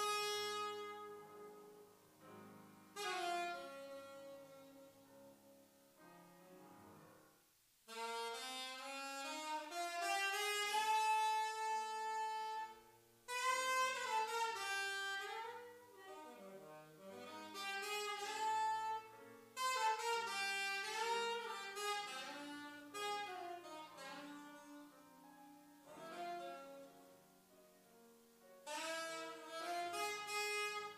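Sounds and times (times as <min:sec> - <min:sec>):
saxophone slow melody: 0:00.0 - 0:06.6, 0:07.9 - 0:30.9
piano accompaniment: 0:00.0 - 0:30.9.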